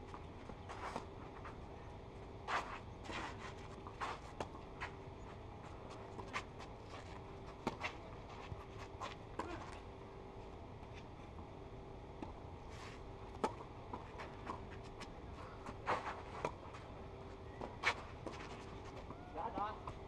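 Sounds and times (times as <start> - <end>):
faint steady hum: 0.0 - 20.0
shoes scuffing on clay: 2.4 - 9.8, 15.7 - 16.9.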